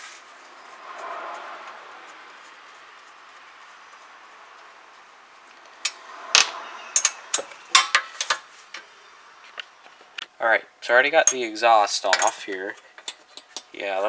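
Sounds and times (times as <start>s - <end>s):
hand tools clicking on metal: 7.0s - 8.9s.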